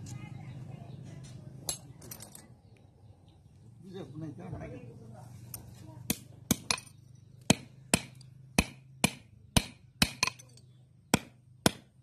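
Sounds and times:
hammer striking metal: 7.5 - 11.8.

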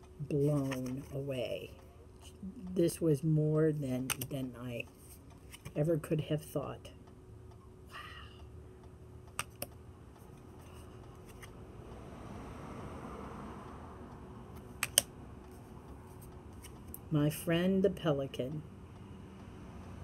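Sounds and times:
faint low hum: 0.0 - 20.0
cards clicking and tapping: 0.4 - 1.2, 4.0 - 4.4, 5.0 - 5.8, 9.3 - 9.8, 10.6 - 11.5, 14.6 - 15.1
sharp clicks: 9.3 - 9.8, 14.5 - 15.1.

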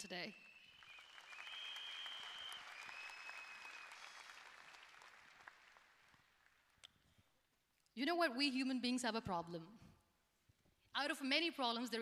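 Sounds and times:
high whistles: 0.3 - 5.1
audience applauding: 0.5 - 6.8.

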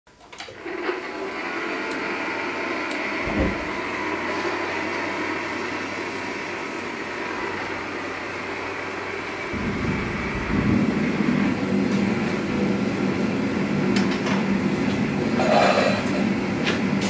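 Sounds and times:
forge blower whooshing: 0.6 - 17.0.

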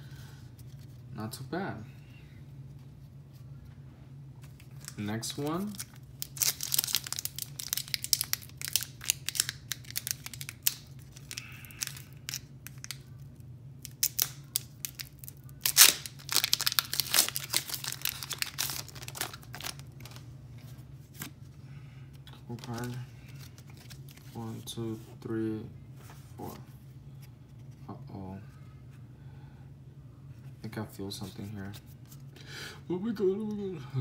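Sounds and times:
low steady hum: 0.0 - 34.0
foil wrapper tearing and crinkling: 4.6 - 13.2, 13.8 - 20.2, 22.5 - 24.4.

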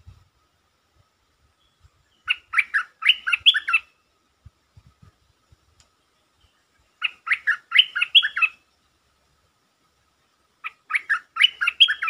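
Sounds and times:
bird singing rapid notes: 1.6 - 4.0, 6.0 - 8.8, 10.6 - 12.0.

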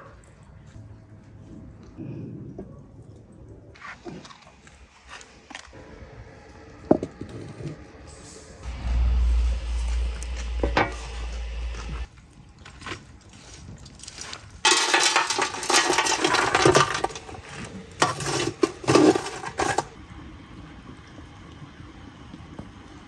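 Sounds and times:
embers clattering on metal: 14.1 - 19.9
metal tray clanking on pan: 14.7 - 17.4.

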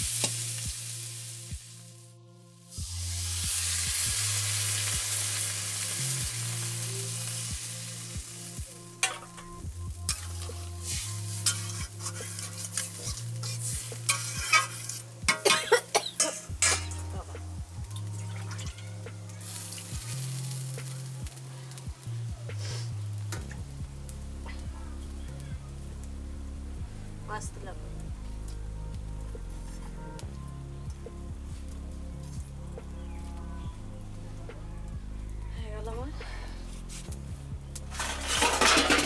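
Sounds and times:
water sizzling in hot pan: 0.0 - 2.0, 2.7 - 24.4, 37.8 - 39.0
metal spatula scraping pan: 10.1 - 17.2, 37.9 - 39.0.

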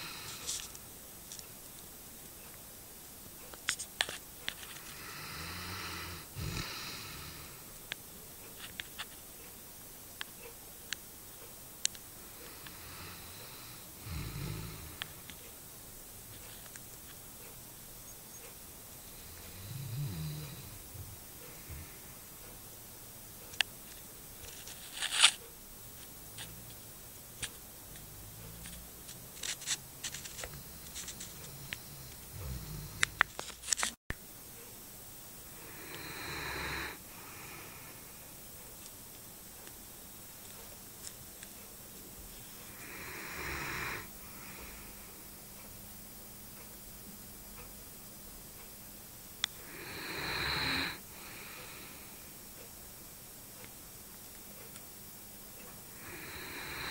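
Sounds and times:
dog snoring: 4.9 - 7.6, 12.4 - 15.2, 19.1 - 20.9, 30.3 - 33.2, 35.6 - 38.0, 42.7 - 45.0, 49.6 - 52.0, 55.9 - 56.9
crackling rustle: 23.4 - 34.0.

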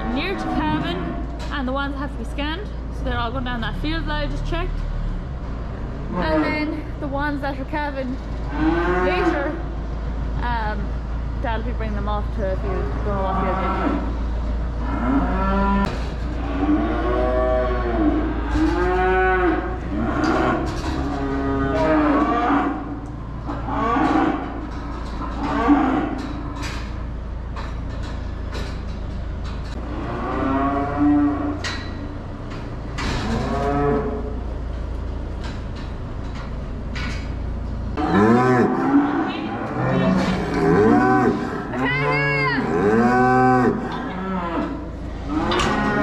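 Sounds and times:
cows mooing: 0.0 - 1.5, 6.1 - 6.9, 8.4 - 9.7, 12.7 - 27.0, 29.7 - 34.5, 37.9 - 46.0
steady low hum: 0.0 - 46.0.

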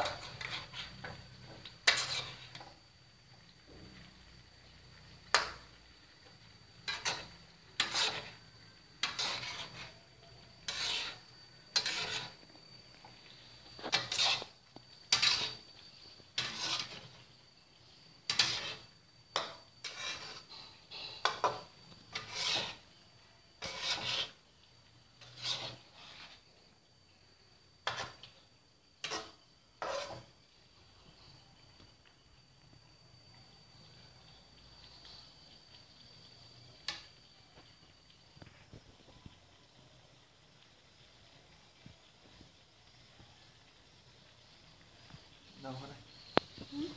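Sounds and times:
metal spatula scraping a wok: 0.0 - 2.9, 4.4 - 26.6, 27.8 - 28.4, 29.0 - 30.4, 36.7 - 37.2.

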